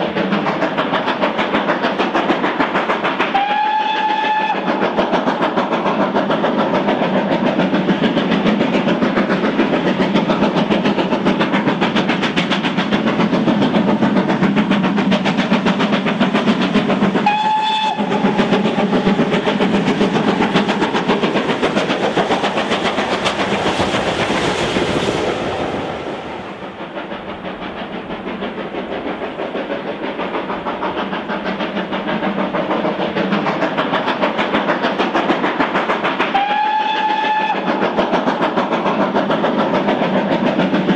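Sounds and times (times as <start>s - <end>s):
steam locomotive exhaust beats: 0.0s - 40.9s
steam whistle blast: 3.3s - 4.7s, 17.2s - 18.2s, 36.3s - 37.7s.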